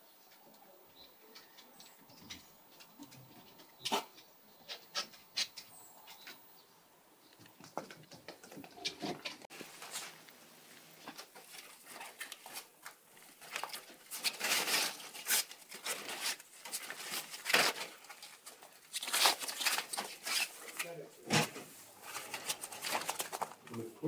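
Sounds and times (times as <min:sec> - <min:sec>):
puppies scrabbling: 0:00.3 - 0:06.4, 0:07.3 - 0:09.5.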